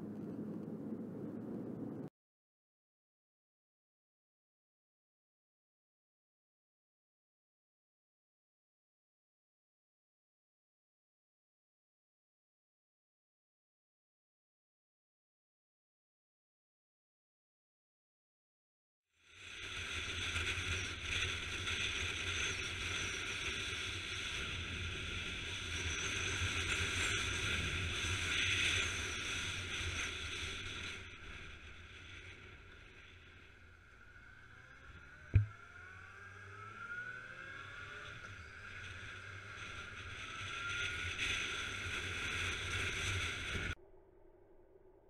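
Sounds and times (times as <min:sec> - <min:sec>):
motorcycle engine accelerating: 0:33.9 - 0:43.5.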